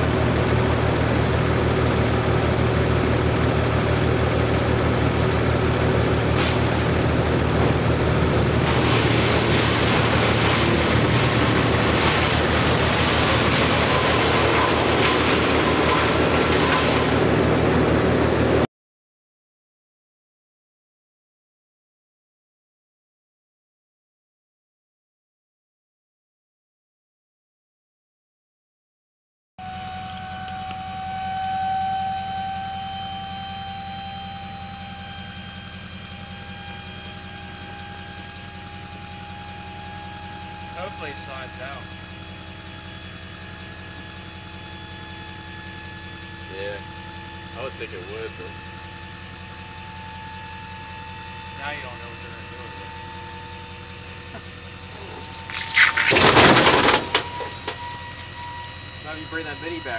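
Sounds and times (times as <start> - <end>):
engine running steadily: 0.0 - 18.6, 29.6 - 59.9
hydraulic pump whining: 0.0 - 18.6, 29.6 - 59.9
rough noisy rush: 6.4 - 18.6.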